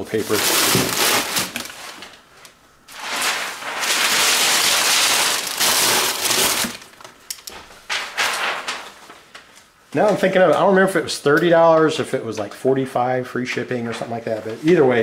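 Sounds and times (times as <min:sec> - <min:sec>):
paper crumpling: 0:00.0 - 0:02.3, 0:02.9 - 0:07.1, 0:07.8 - 0:09.5.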